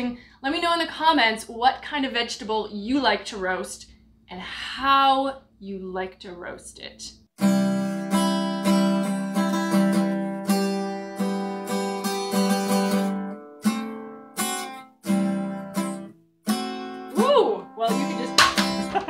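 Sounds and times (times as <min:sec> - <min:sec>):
strummed acoustic guitar chords: 0:07.4 - 0:17.2, 0:17.9 - 0:19.0.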